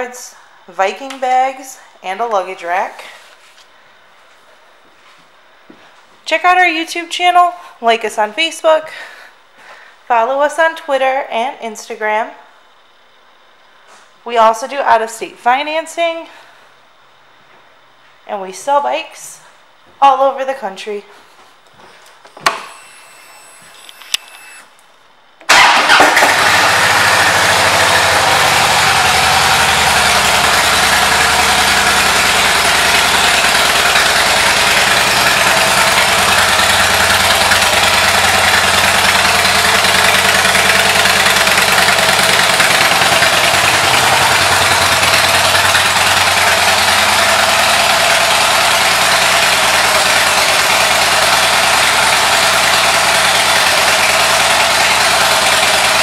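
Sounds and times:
motorcycle engine idling: 25.7 - 56.0.

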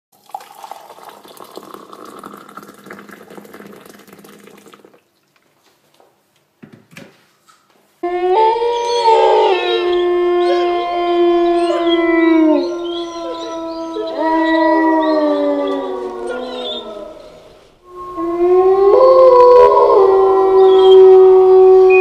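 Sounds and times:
wolves howling: 8.0 - 22.0.

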